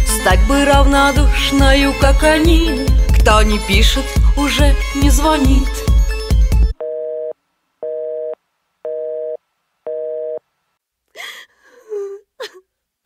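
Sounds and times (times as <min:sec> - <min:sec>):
woman sobbing breaths: 0:11.2 - 0:12.7.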